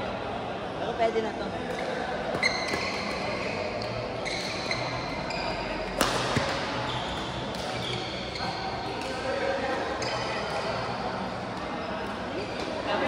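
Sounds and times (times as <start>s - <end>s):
shoes squeaking on floor: 2.3s - 8.9s
racket striking shuttlecock: 6.0s - 6.6s.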